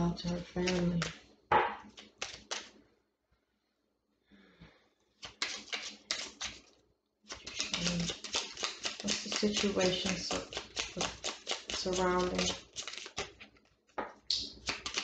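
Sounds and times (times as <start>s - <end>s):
cards being shuffled: 0.6s - 1.2s, 1.8s - 2.8s, 5.2s - 6.7s, 7.3s - 15.0s.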